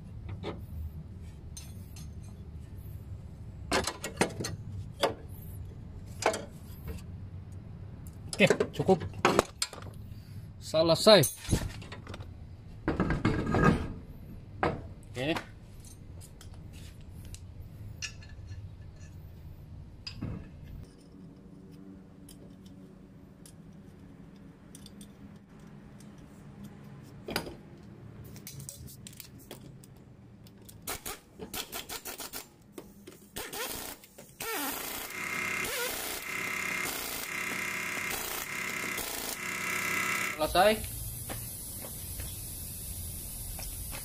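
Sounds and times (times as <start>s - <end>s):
impact wrench rattling: 33.4s - 40.4s.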